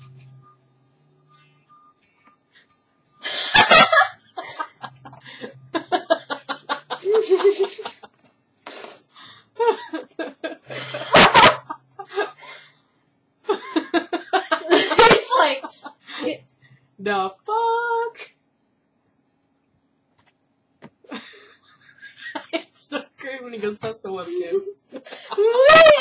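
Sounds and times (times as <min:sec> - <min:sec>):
woman laughing hard: 0:03.3 - 0:08.1, 0:09.6 - 0:12.4, 0:13.5 - 0:16.0, 0:24.3 - 0:26.0.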